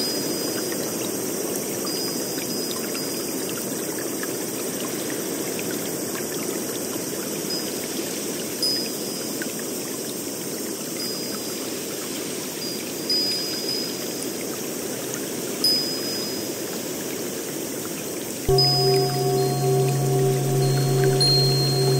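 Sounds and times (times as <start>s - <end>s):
faint high tinkling tones: 1.9s - 3.5s, 12.6s - 14.2s, 15.6s - 16.6s, 18.5s - 21.9s.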